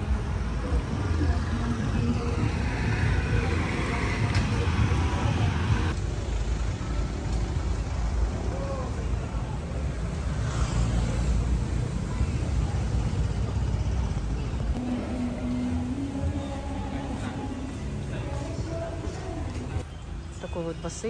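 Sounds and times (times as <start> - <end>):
indistinct voices: 0.0 - 6.0, 11.4 - 19.8
road traffic rumble: 0.0 - 21.0.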